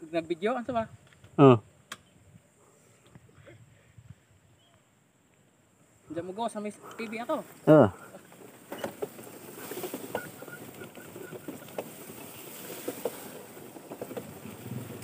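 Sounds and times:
tall grass rustling: 7.3 - 15.0.

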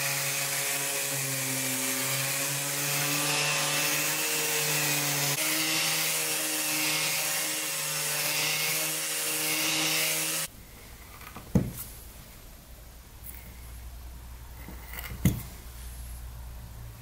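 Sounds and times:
orbital sander running: 0.0 - 10.5.

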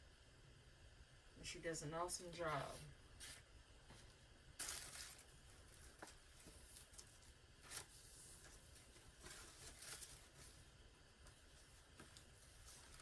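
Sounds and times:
paper and tissue rustling: 2.6 - 13.0.

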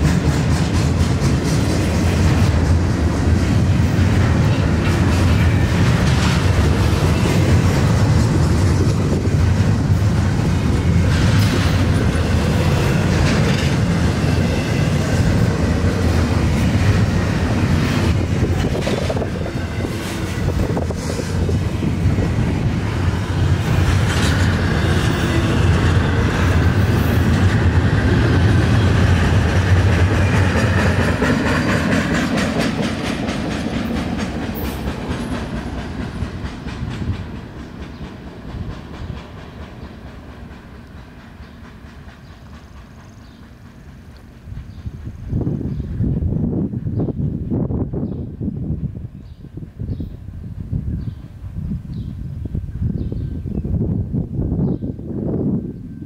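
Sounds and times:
wheels clacking over rail joints: 0.0 - 46.1
freight train rumble: 0.0 - 56.0.

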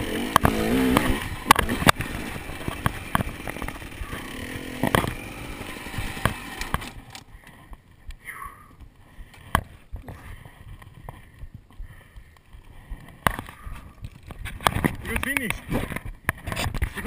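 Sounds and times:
sharp knocks and clicks: 4.8 - 5.2.

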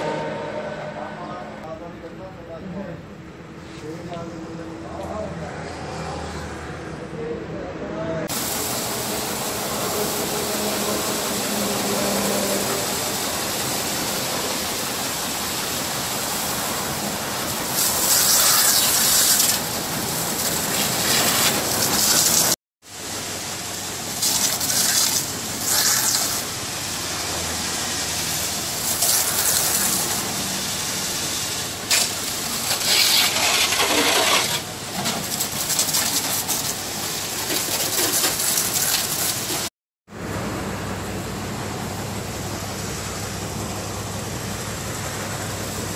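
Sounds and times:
pressure washer water jet hissing: 8.3 - 39.7.

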